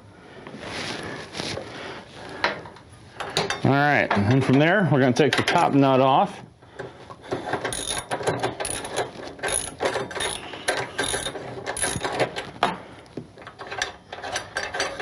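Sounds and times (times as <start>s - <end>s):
ratchet wrench clicking: 7.7s - 12.2s.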